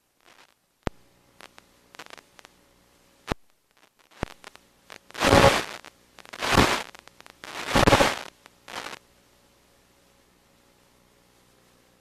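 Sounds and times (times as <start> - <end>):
crackling noise bursts: 0.0 - 11.5.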